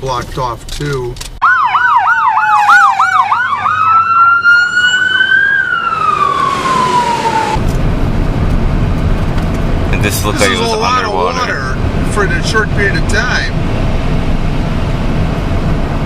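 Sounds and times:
car road noise: 0.0s - 16.0s
electronic siren: 1.4s - 7.6s.

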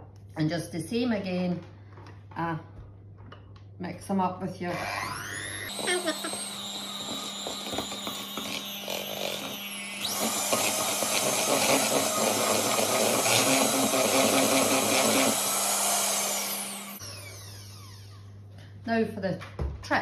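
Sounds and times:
electric hand mixer running: 4.7s - 18.4s.

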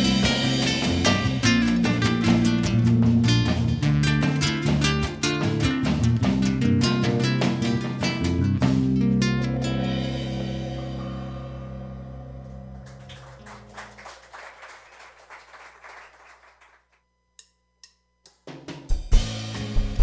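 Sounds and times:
drums and guitars playing: 0.0s - 13.9s, 18.4s - 20.0s
rock band held chord: 0.0s - 15.3s.

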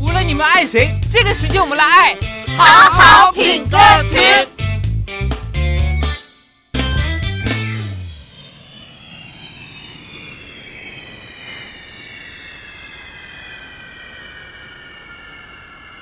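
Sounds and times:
high tones gliding downward: 0.4s - 4.5s, 7.3s - 16.0s
jet-like whoosh: 7.6s - 16.0s.

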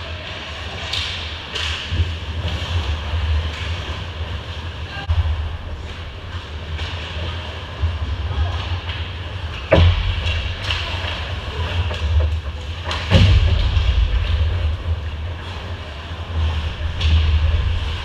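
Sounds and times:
steady low rumble: 1.9s - 18.0s
sharp knocks: 9.7s - 14.8s.

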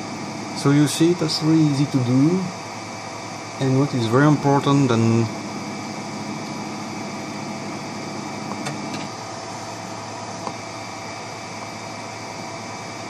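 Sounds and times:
printer fan noise: 0.0s - 13.0s.

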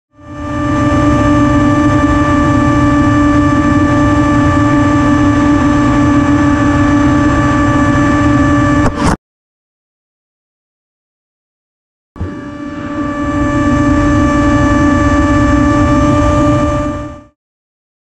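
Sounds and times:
drone motors whining: 0.2s - 9.2s, 12.2s - 17.4s.

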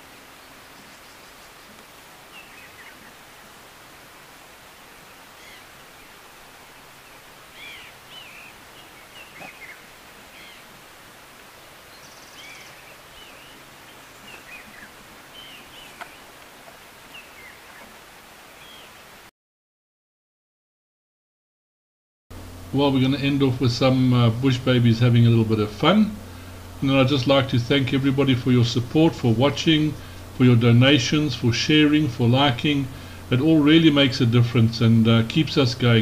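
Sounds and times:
steady background hiss: 0.0s - 19.3s, 22.3s - 36.0s
high chirping calls: 7.1s - 10.7s, 11.9s - 16.3s.

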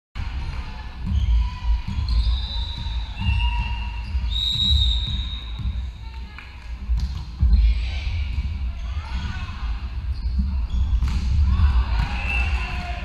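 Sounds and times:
high shoe squeals: 1.1s - 5.8s, 8.7s - 11.0s.

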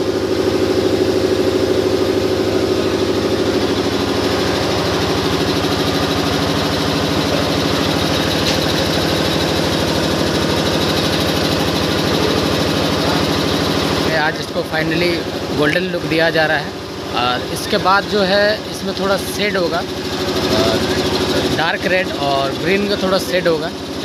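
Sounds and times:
air compressor running: 0.0s - 24.0s.

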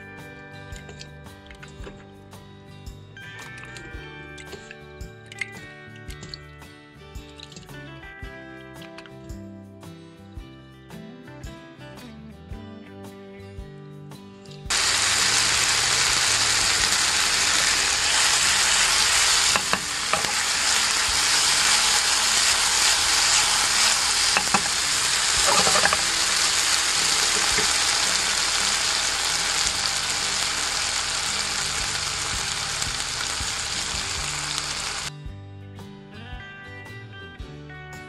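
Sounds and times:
meat sizzling in a frying pan: 14.7s - 35.1s.

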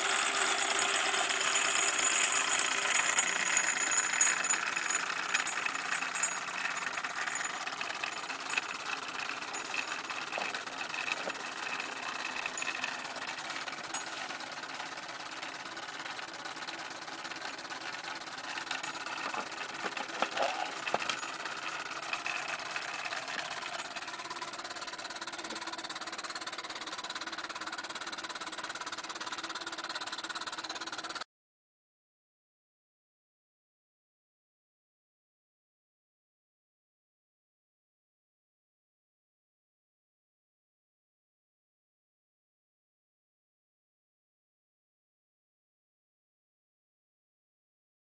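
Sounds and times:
grain mill machinery knocking: 0.0s - 31.2s.

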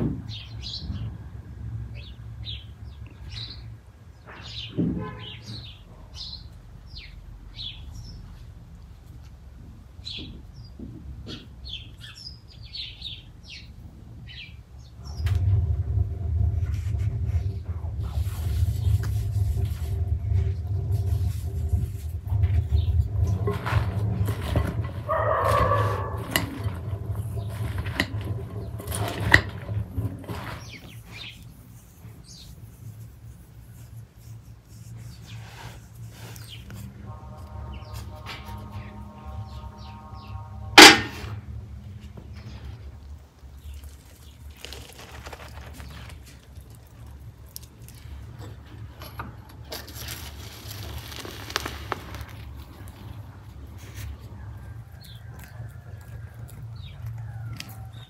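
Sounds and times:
steady low rumble: 0.2s - 4.2s, 13.0s - 44.7s
charcoal crackling and ticking: 17.0s - 32.6s, 42.3s - 58.0s
lettuce leaves rustling: 42.8s - 48.6s, 49.6s - 57.1s.

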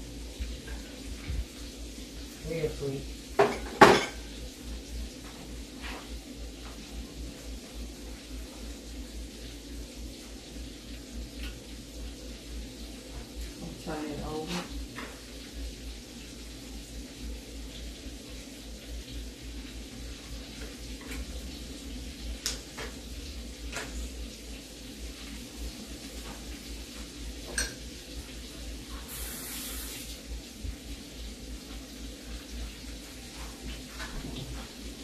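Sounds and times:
stovetop hiss and hum: 0.0s - 35.0s
cookware clinking: 3.4s - 4.2s, 27.5s - 27.8s.

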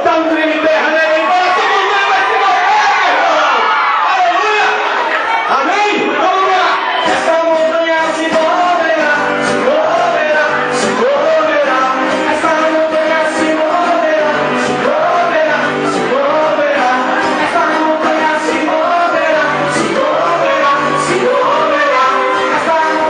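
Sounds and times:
gospel band playing: 0.0s - 23.0s
lead vocal singing: 6.0s - 23.0s.

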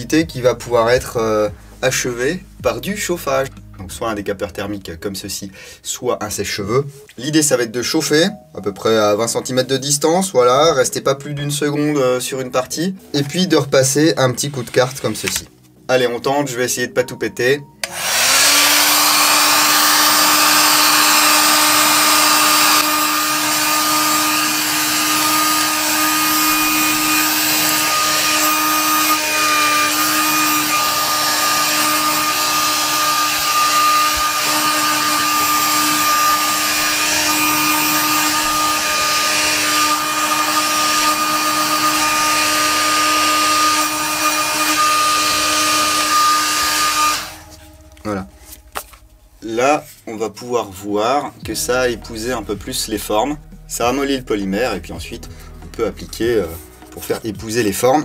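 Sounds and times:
heat gun blowing air: 17.8s - 47.8s.

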